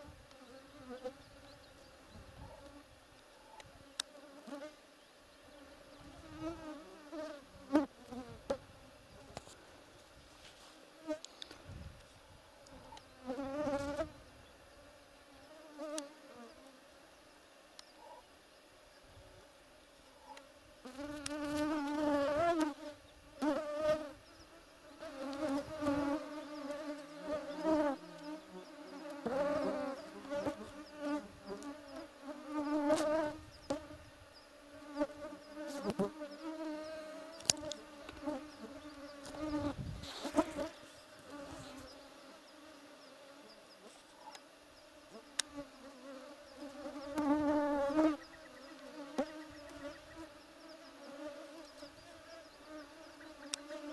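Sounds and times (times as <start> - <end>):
insect buzzing: 0.0 - 53.9.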